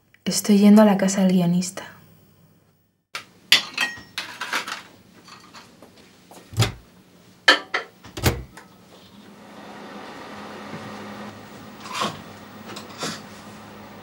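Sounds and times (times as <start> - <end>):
microwave oven humming: 8.0 - 14.0.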